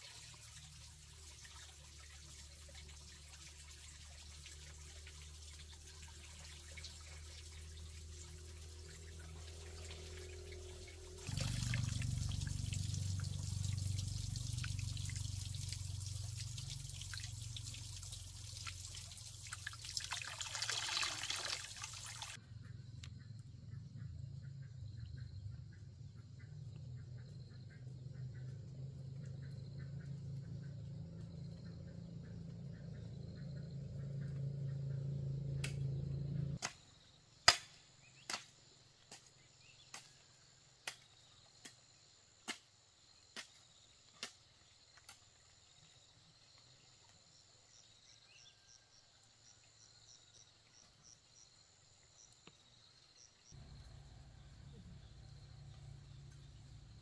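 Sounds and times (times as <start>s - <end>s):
water trickling: 0.0s - 22.4s
low hum: 7.0s - 18.3s, 22.5s - 36.6s, 53.6s - 57.0s.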